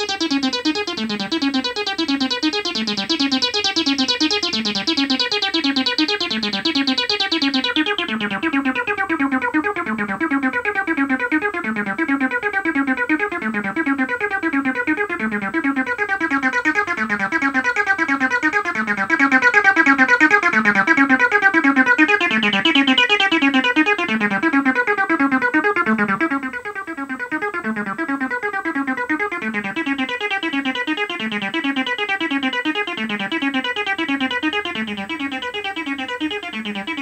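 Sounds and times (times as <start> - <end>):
synthesizer bass sequence: 0.0 - 9.1, 32.4 - 37.0.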